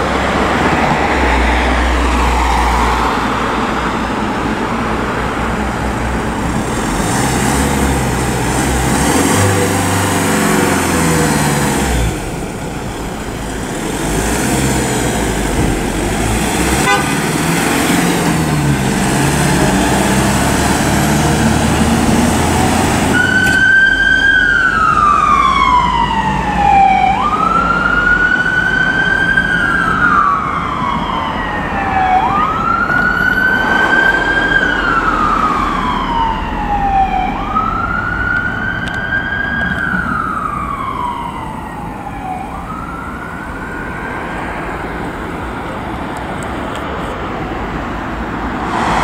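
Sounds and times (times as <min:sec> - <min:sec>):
road traffic noise: 0:00.0 - 0:49.0
siren wailing: 0:20.2 - 0:44.8.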